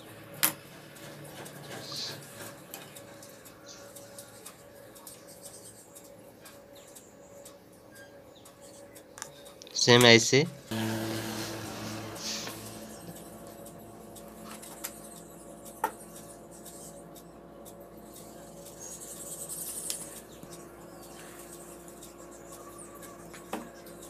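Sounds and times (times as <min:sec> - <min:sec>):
steady low hum: 0:10.5 - 0:24.0.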